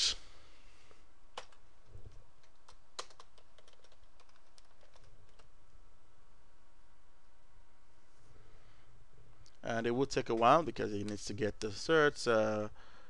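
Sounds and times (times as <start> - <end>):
faint steady hum: 0.0 - 13.0
computer keyboard typing: 1.4 - 5.5.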